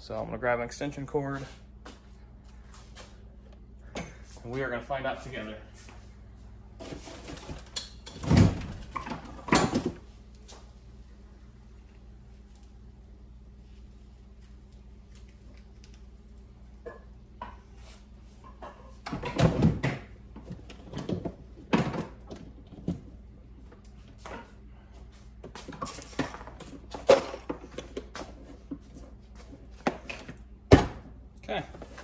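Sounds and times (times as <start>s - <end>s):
low steady hum: 0.0s - 32.0s
knocks thuds and rattles: 7.4s - 10.0s, 19.0s - 23.1s.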